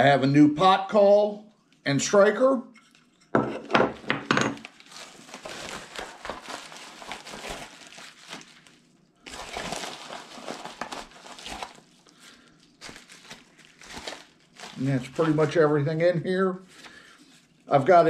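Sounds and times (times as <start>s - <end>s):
packing material crinkling: 4.6s - 15.7s.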